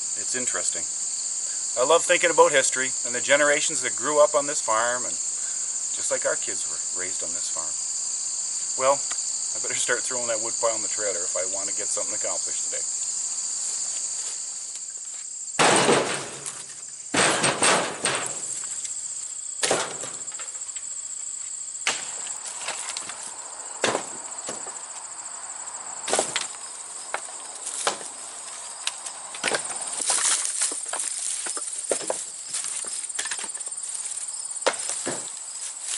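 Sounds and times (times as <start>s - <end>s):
insects buzzing: 0.0s - 35.9s
wood landing on wood: 15.6s - 18.9s, 19.6s - 20.6s, 21.8s - 23.2s, 23.8s - 24.8s, 26.1s - 28.1s, 29.4s - 33.6s, 34.6s - 35.4s.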